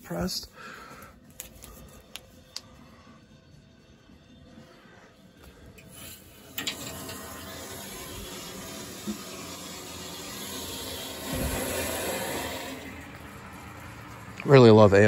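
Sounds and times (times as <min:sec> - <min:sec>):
water rushing into tank: 0:06.0 - 0:15.0.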